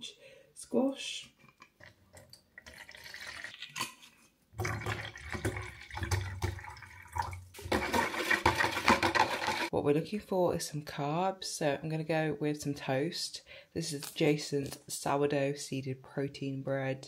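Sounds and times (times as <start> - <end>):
water pouring into a plastic tub: 1.8 - 9.7
plastic bottle clicking and rattling: 7.6 - 9.7.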